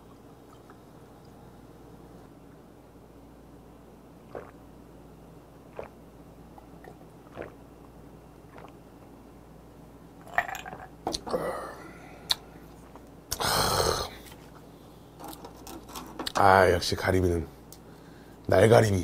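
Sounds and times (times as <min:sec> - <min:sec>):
man gulping drink: 0:04.3 - 0:04.6, 0:05.7 - 0:07.6, 0:08.5 - 0:08.8, 0:10.2 - 0:11.6.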